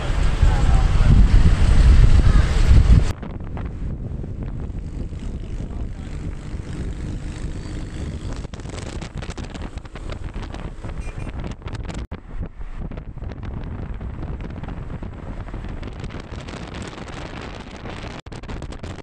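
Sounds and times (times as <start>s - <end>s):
road and engine noise: 0.0s - 18.8s
wind buffeting microphone: 0.0s - 19.0s.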